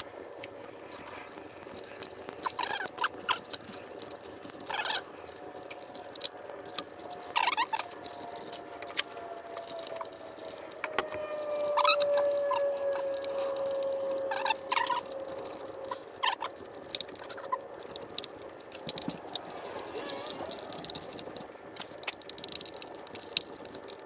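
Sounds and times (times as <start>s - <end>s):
steady tone sliding lower: 5.3s - 23.0s
squeaky rubber rubbing: 7.1s - 17.7s.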